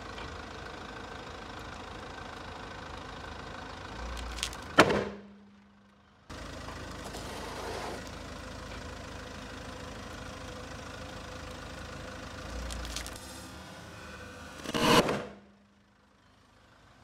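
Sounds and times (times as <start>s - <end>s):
car engine idling: 0.0s - 17.0s
ball bursting with loud bang: 14.7s - 15.4s.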